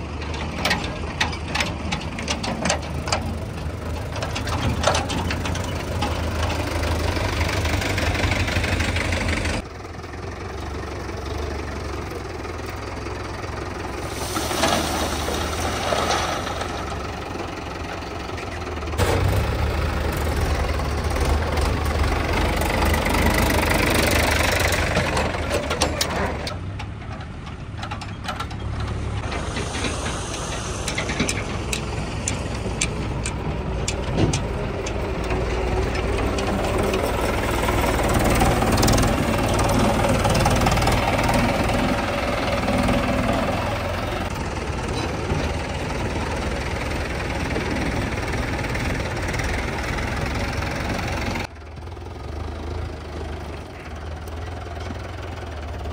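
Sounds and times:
tractor engine running: 0.0s - 55.9s.

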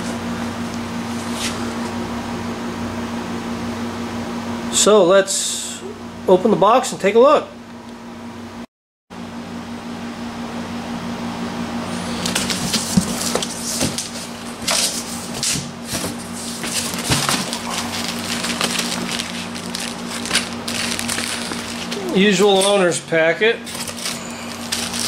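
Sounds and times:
steady low hum: 0.0s - 25.0s
cardboard and plastic crinkling: 12.0s - 23.0s, 23.7s - 25.0s.

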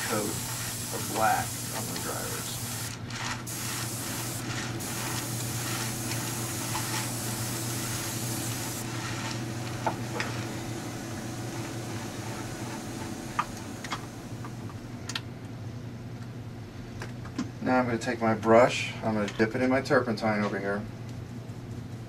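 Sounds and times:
airbrush spraying hiss: 0.0s - 14.9s.

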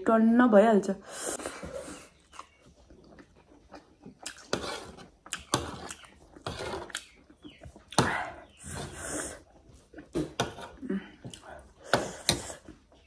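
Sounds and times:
chewing: 1.4s - 13.0s
metal spoon scraping a tray: 4.5s - 6.9s.

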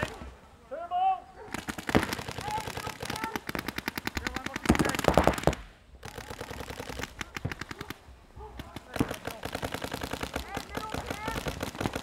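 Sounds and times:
paintball guns firing rapidly: 1.5s - 8.0s, 8.6s - 12.0s.

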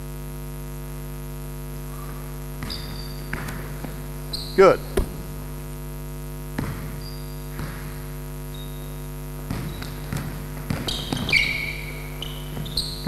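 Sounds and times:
electrical mains hum: 0.0s - 13.0s
sneaker squeaks: 1.9s - 5.6s, 6.6s - 13.0s
basketball bouncing on gym floor: 1.9s - 5.7s, 6.4s - 13.0s.

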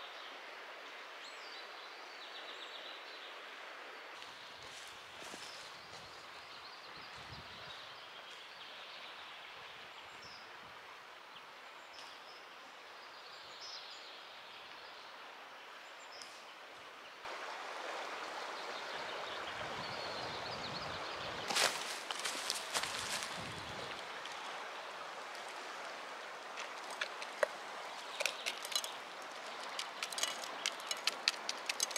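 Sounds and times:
forest wind rushing: 17.2s - 31.9s
sharp clicks: 27.0s - 31.9s.

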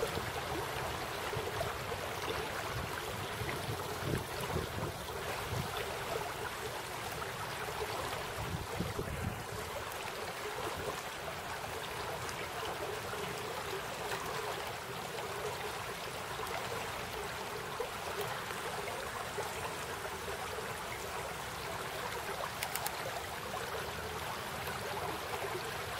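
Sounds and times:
brook water running over gravel: 0.0s - 25.9s.

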